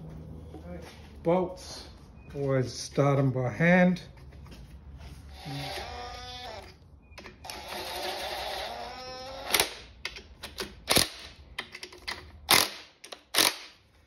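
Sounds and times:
rattling whir of bolts: 5.3s - 13.8s.

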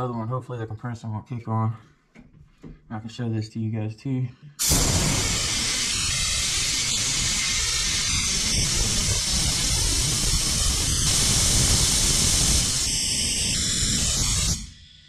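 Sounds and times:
compressed air hissing: 4.6s - 15.0s.

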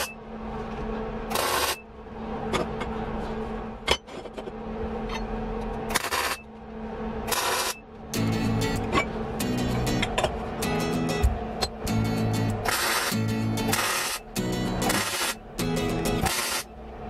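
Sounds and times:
steady low hum: 0.0s - 17.0s
welder crackling: 12.6s - 15.4s, 16.0s - 16.7s.

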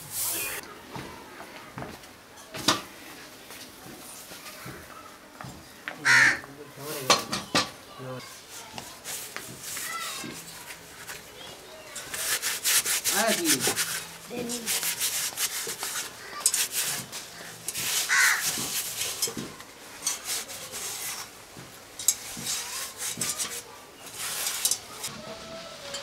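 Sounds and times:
cloth scrubbing rusty metal: 8.2s - 25.1s.

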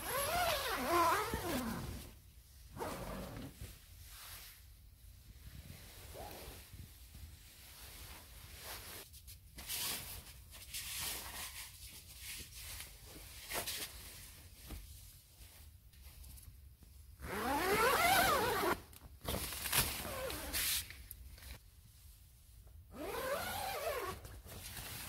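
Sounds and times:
tent zipper opening: 0.0s - 2.1s, 2.7s - 3.6s, 17.2s - 18.8s, 20.0s - 20.6s, 23.0s - 24.2s
canvas scraping and rustling: 0.0s - 4.7s, 17.3s - 20.9s, 23.0s - 25.0s.

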